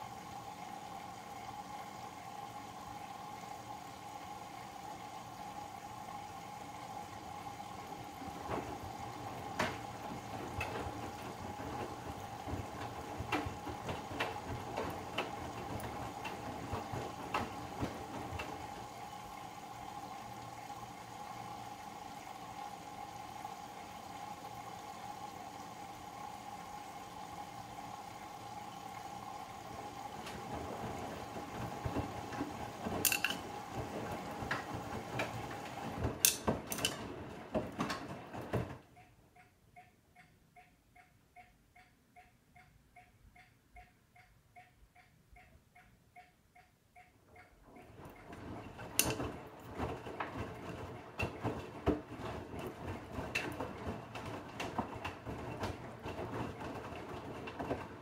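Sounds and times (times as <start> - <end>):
laundry tumbling in water: 0.0 - 38.8, 47.8 - 58.0
washing machine motor hum: 0.0 - 39.4, 47.0 - 58.0
knocks in washing machine: 8.1 - 18.9, 30.0 - 38.8, 48.2 - 58.0.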